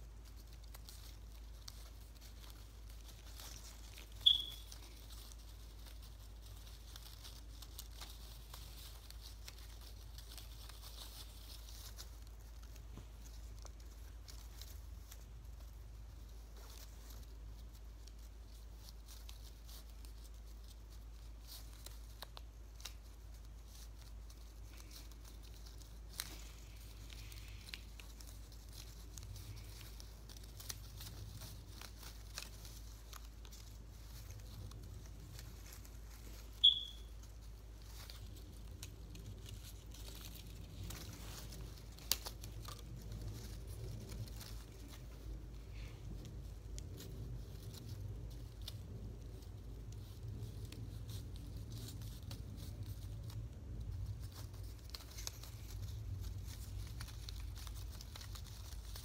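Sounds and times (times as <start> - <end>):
low steady hum: 0.0 - 59.0
paper rustling and crinkling: 0.0 - 59.0
high-pitched chirp: 4.2 - 4.7, 36.6 - 37.1.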